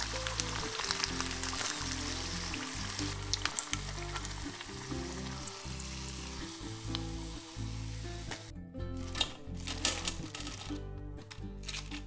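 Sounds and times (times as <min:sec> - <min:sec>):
chicken deep-frying in oil: 0:00.0 - 0:10.8
oil crackles and pops: 0:00.0 - 0:12.0
soft background music: 0:00.0 - 0:12.0.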